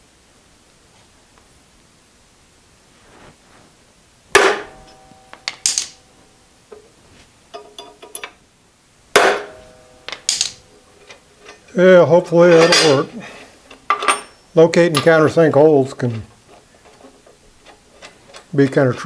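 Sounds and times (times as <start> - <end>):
hammer striking metal punch: 4.4 - 6.0, 9.2 - 10.6
metal tools clinking: 7.5 - 8.4, 9.4 - 15.4.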